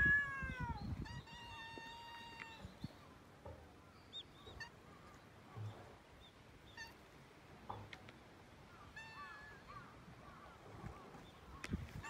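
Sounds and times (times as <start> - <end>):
high-pitched cat meows: 0.0 - 2.6, 9.0 - 9.6.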